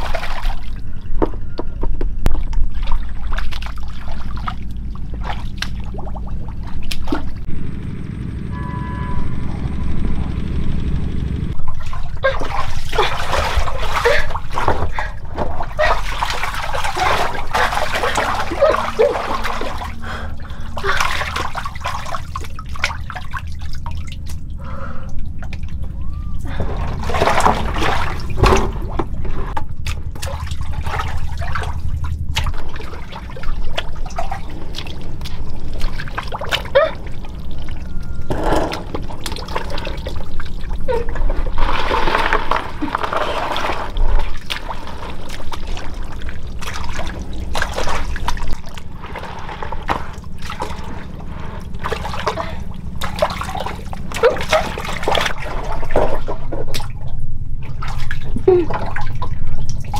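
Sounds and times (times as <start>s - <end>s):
steady low hum: 0.0s - 59.9s
water splashing and sloshing: 0.0s - 59.9s.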